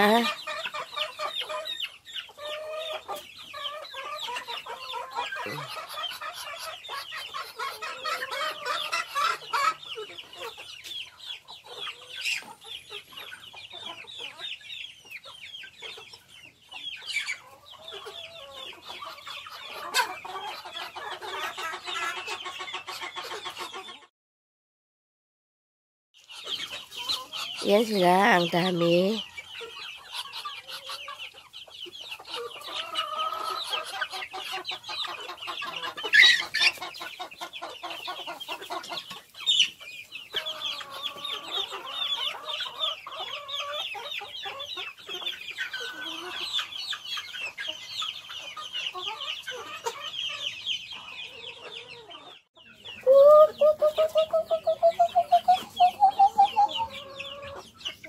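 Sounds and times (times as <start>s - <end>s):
chickens clucking: 0.0s - 24.1s, 26.2s - 58.0s
rapid pulsed chicken calls: 26.2s - 58.0s.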